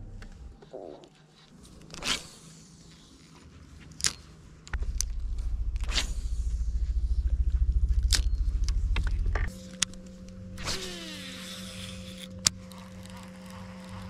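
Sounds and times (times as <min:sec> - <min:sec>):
steady electric hum: 0:04.5 - 0:14.0
boat motor pulsing: 0:04.7 - 0:14.0.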